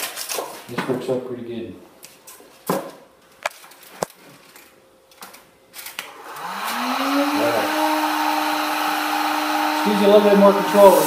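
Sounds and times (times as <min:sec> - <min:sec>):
heat gun motor whine: 0:06.1 - 0:11.0
rush of blown air: 0:09.8 - 0:11.0.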